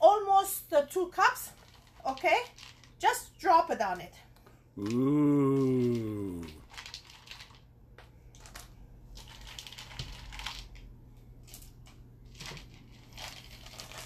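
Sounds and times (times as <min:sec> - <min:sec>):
chocolate chips clicking and rustling: 0:01.5 - 0:03.0, 0:05.6 - 0:07.7, 0:08.3 - 0:14.0.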